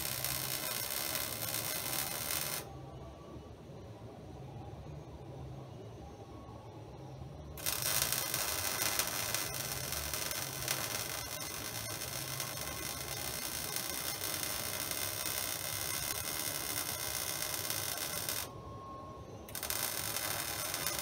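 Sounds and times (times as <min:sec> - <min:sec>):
welding arc crackling hiss: 0:00.0 - 0:02.7, 0:07.6 - 0:18.5, 0:19.5 - 0:21.0.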